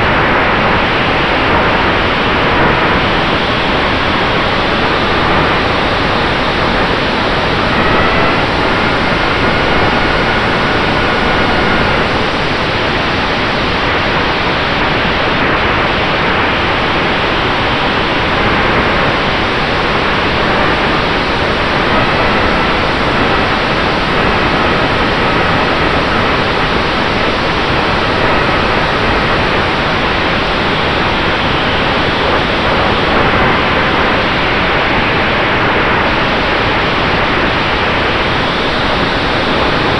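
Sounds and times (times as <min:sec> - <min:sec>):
wind rushing over microphone: 0:00.0 - 0:39.9
electric motor and propeller whine: 0:06.7 - 0:12.6.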